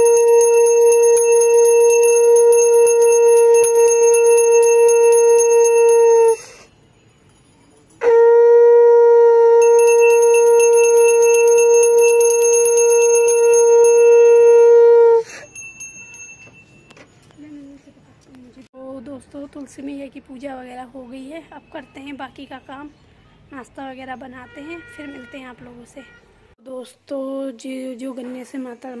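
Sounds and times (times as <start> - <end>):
hand bell ringing rapidly: 0.0 - 6.3, 9.6 - 14.4, 15.3 - 16.9
conch shell blasts: 0.0 - 6.7, 8.0 - 15.6.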